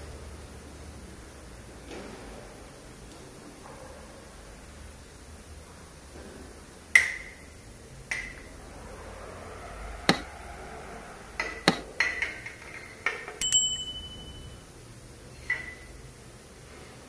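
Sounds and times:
metal clinks and taps: 0:13.4 - 0:14.6
high ringing ding: 0:13.4 - 0:14.7.

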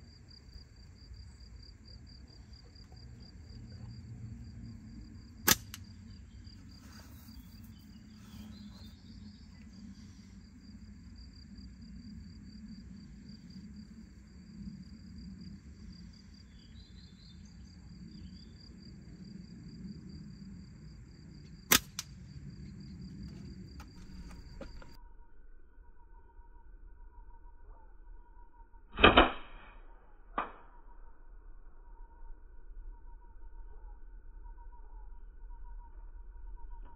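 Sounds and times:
insects chirping: 0:00.0 - 0:28.8, 0:31.8 - 0:36.9
slingshot bands snapping: 0:05.5 - 0:05.8.

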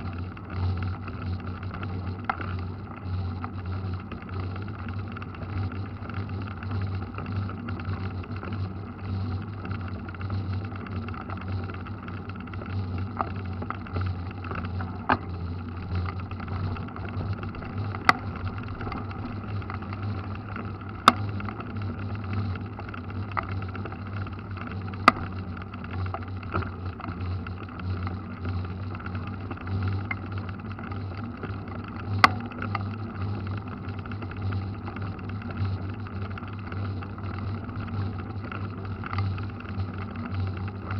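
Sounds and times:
bike tyres rumbling on asphalt: 0:00.0 - 0:40.9.

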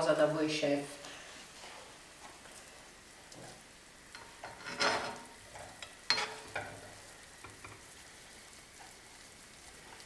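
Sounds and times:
faint sizzle: 0:00.0 - 0:10.0
ladle scraping a frying pan: 0:04.2 - 0:05.3, 0:06.1 - 0:06.8.

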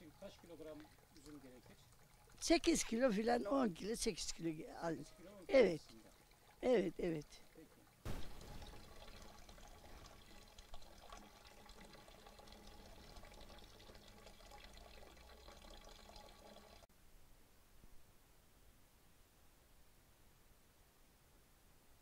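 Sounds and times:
juice pouring into a cauldron: 0:00.0 - 0:16.9.

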